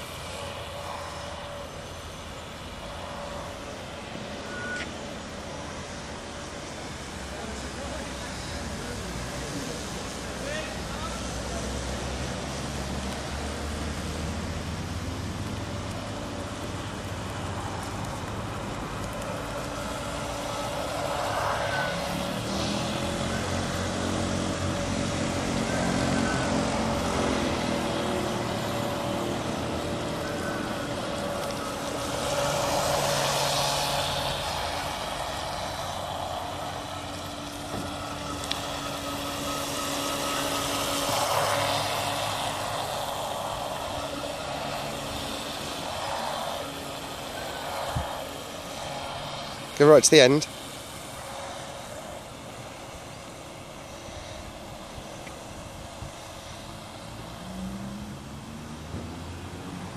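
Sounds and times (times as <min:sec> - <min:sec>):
model boat electric motor whine: 0:00.0 - 0:05.7, 0:19.2 - 0:58.2.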